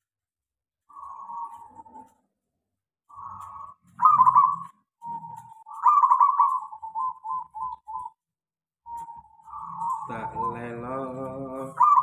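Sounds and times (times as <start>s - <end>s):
dove cooing and trilling: 0.9s - 2.2s, 3.1s - 8.2s, 8.9s - 12.0s.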